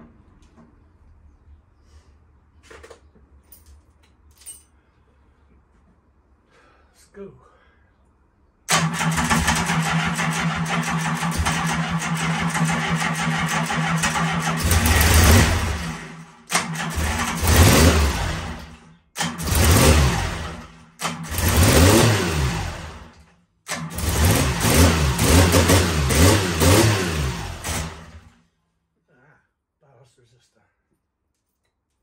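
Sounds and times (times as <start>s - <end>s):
motorcycle engine revving: 8.7s - 28.4s.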